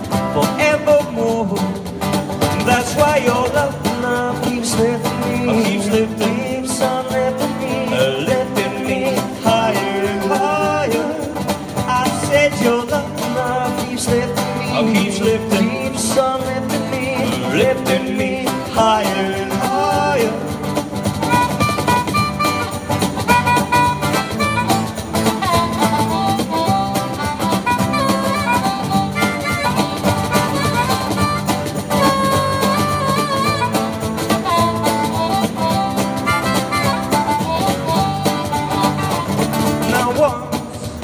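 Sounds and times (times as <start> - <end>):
cajon beat: 0.0 - 41.0
strummed acoustic guitar: 0.0 - 41.0
harmonica solo: 21.2 - 39.8.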